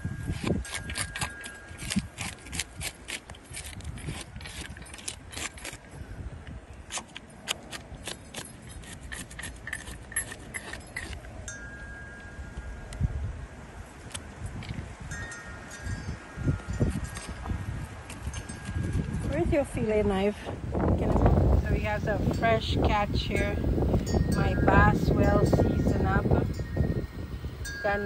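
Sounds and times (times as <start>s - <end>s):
knife scraping fish scales: 6.9s - 11.3s.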